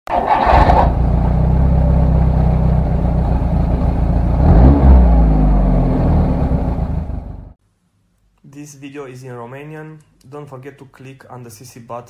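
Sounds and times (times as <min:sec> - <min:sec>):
car engine running: 0:00.6 - 0:07.6.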